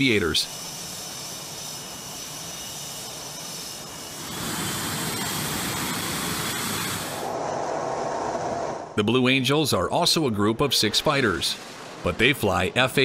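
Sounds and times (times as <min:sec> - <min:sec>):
jet engines with turbine whine: 0:00.0 - 0:09.0.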